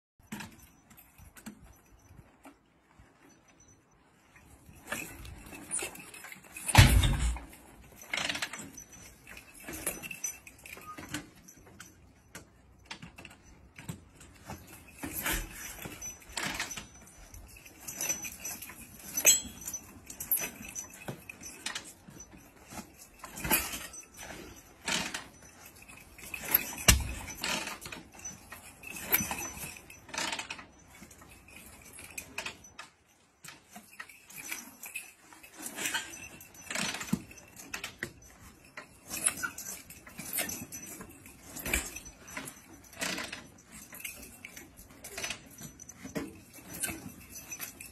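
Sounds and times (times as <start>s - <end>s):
kick lever clanking: 6.6s - 7.5s, 26.4s - 27.9s.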